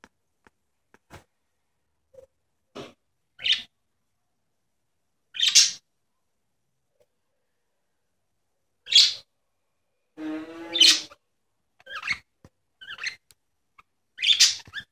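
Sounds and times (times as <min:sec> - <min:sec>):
budgerigar chirping: 0:05.4 - 0:05.8, 0:08.9 - 0:09.2, 0:14.2 - 0:14.9.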